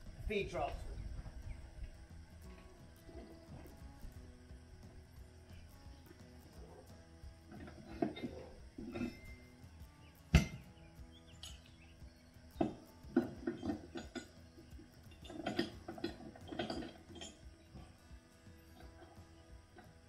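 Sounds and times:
metal hitch clinking and clanking: 7.5s - 9.6s, 10.3s - 10.6s, 11.3s - 11.7s, 12.6s - 18.0s.

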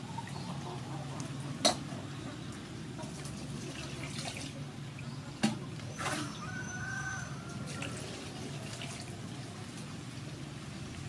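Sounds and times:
water pouring and splashing: 3.0s - 6.4s, 7.6s - 11.0s.

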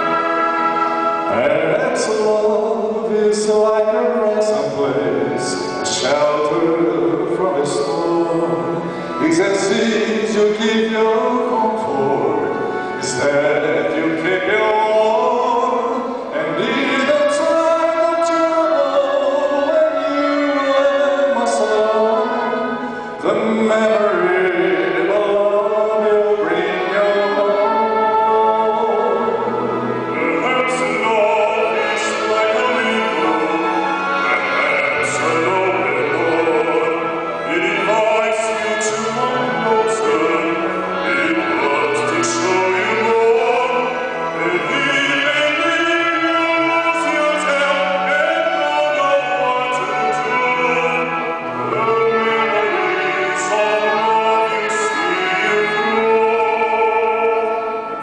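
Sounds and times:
instrumental accompaniment: 0.0s - 58.0s
man singing a slow ballad: 1.3s - 29.2s.

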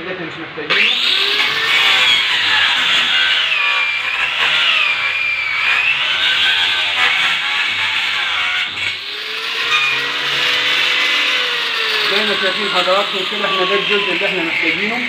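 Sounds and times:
angle grinder cutting plastic: 0.7s - 15.0s.

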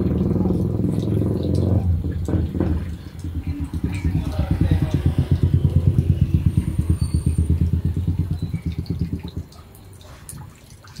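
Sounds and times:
engine low throb: 0.0s - 9.9s.

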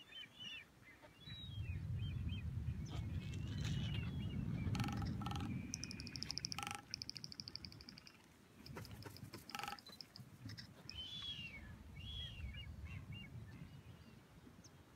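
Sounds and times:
bird chattering trill: 4.7s - 11.3s
arched whistling bird calls: 10.8s - 12.5s.

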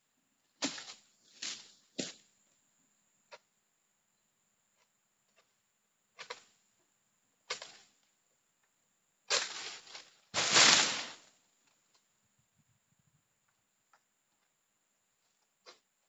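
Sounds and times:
frond rustling through leaves: 9.3s - 11.3s
heavy crash of falling bunch: 9.4s - 11.3s.

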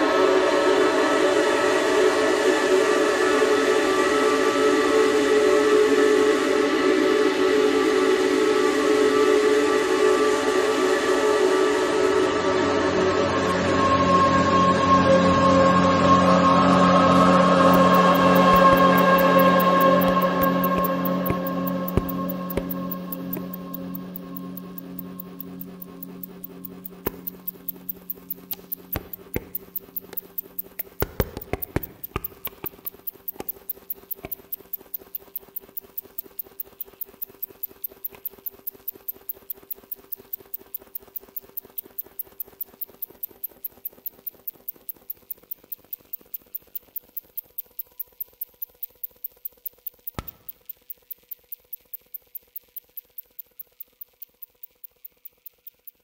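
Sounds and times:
ambient drone tones: 0.0s - 42.1s
ticking pulse of clicks: 17.4s - 56.0s.

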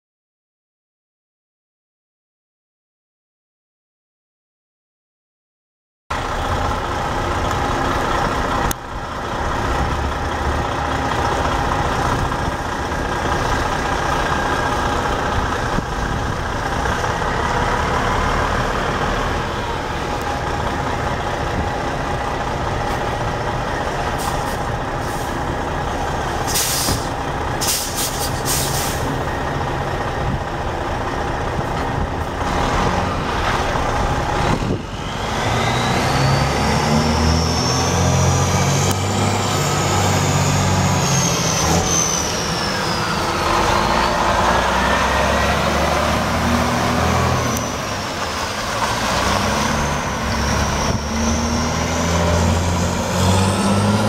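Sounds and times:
diesel truck engine running: 6.1s - 54.0s
air brake hiss: 24.2s - 25.4s, 26.5s - 29.2s.

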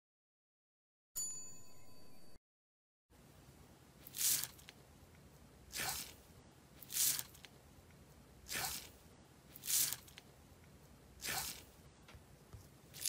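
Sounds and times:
hand squelching slime: 4.0s - 4.8s, 5.7s - 6.2s, 6.8s - 7.6s, 8.4s - 10.3s, 11.2s - 11.7s.

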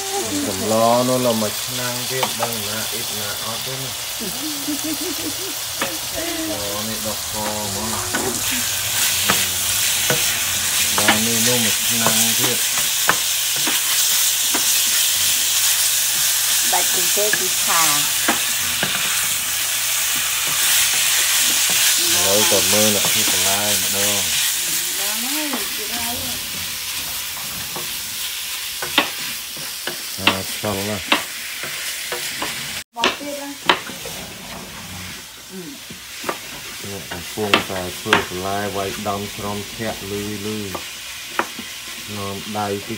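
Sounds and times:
meat sizzling in a frying pan: 0.0s - 42.9s
wooden spatula scraping a pan: 7.1s - 30.2s, 33.6s - 38.2s.

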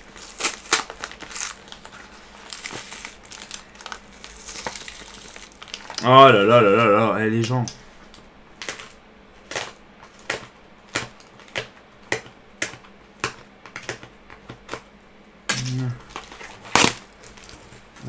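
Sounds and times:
cardboard envelope tearing: 0.0s - 6.1s, 15.6s - 17.7s.

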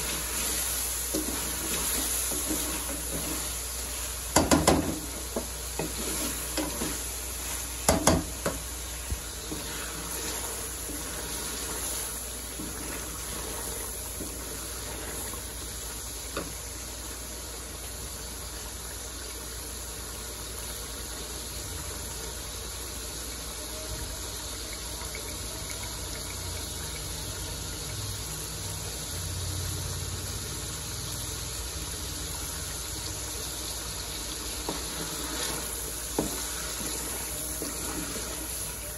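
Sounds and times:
wooden spatula scraping pan: 0.0s - 8.6s, 9.3s - 15.4s, 34.6s - 38.9s
food sizzling in a pan: 0.0s - 38.9s.

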